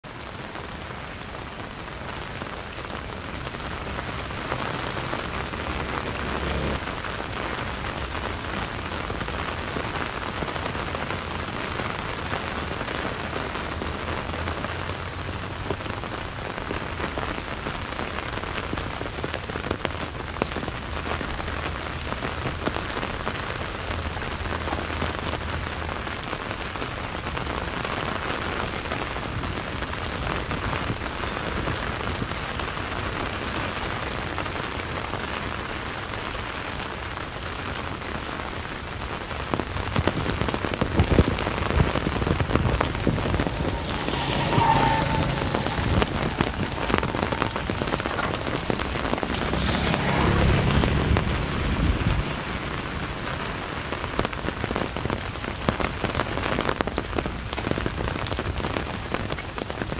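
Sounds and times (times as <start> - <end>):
steady rain falling: 0.0 - 59.9
sharp raindrop hits: 0.1 - 59.9
low rumble: 41.2 - 54.6.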